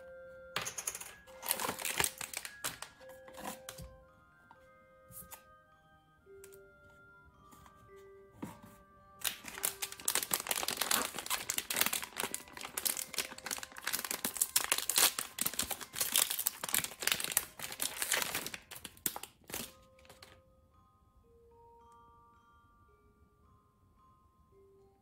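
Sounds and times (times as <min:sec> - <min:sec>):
foil pouch crinkling: 0:01.4 - 0:03.5, 0:09.2 - 0:20.4.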